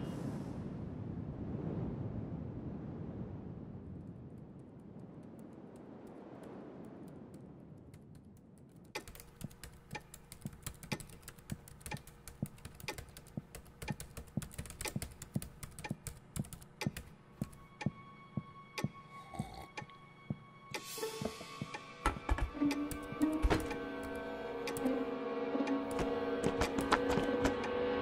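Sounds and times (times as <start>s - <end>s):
fast typing on keyboard: 8.0s - 17.6s, 25.9s - 27.6s.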